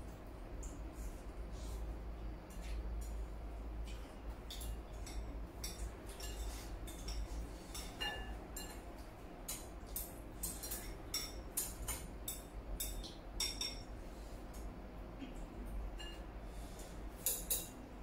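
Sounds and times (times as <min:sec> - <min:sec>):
chopsticks clinking on ceramic bowls: 0:04.5 - 0:08.8, 0:09.5 - 0:13.9.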